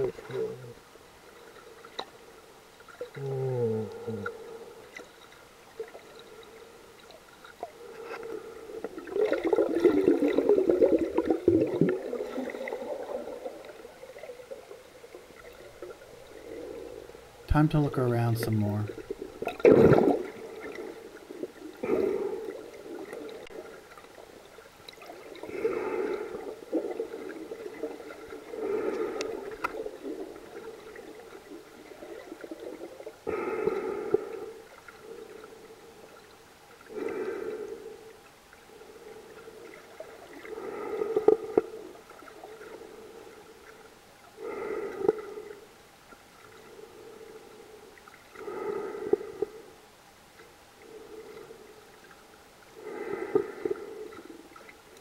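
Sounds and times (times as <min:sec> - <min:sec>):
water gurgling in tube: 0:08.8 - 0:17.0, 0:18.9 - 0:23.8
breathing through a snorkel: 0:28.5 - 0:29.6, 0:36.9 - 0:38.1, 0:44.4 - 0:45.6, 0:48.4 - 0:49.7, 0:52.8 - 0:54.4.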